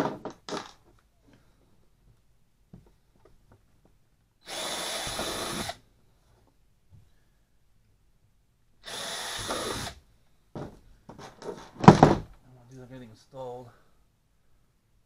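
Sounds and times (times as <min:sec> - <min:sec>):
cordless drill driving screws: 0:04.4 - 0:05.8, 0:08.8 - 0:10.0.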